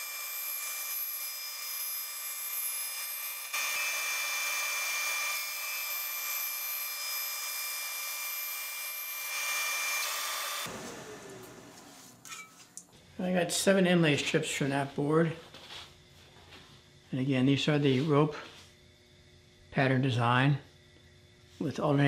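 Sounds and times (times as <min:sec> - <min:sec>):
band saw cutting wood: 0:00.0 - 0:12.2.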